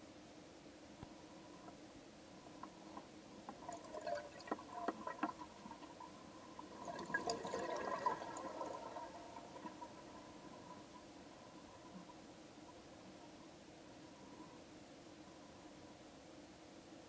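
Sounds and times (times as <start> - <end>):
faint steady hum: 0.0 - 17.0
underwater bubbling: 2.4 - 15.7.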